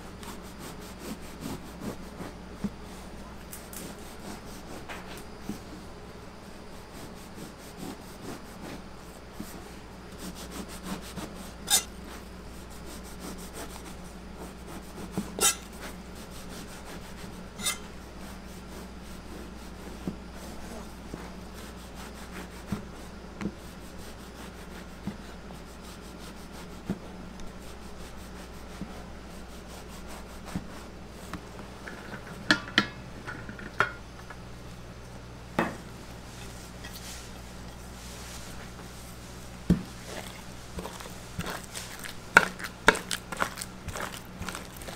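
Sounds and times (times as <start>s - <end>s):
steady low hum: 0.0s - 44.9s
knife sawing through bread: 0.3s - 2.4s, 3.6s - 4.9s, 6.9s - 8.9s, 10.1s - 19.9s, 21.6s - 23.1s, 27.6s - 30.9s, 40.0s - 44.9s.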